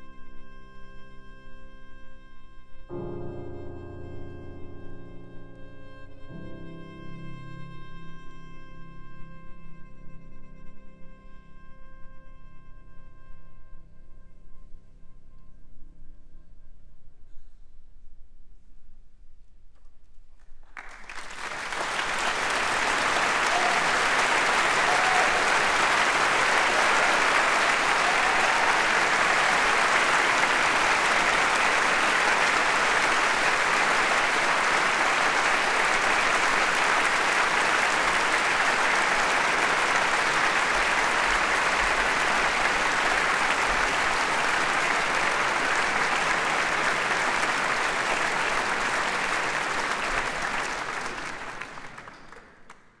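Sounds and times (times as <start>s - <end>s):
audience applauding: 20.6s - 53.0s.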